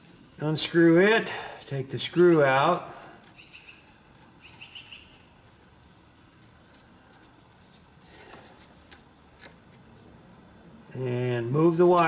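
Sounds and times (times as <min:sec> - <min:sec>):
cable and wires handled: 0:05.3 - 0:09.9.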